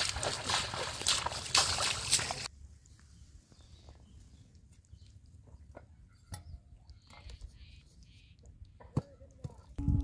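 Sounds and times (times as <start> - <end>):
footsteps splashing through water: 0.0 - 2.5.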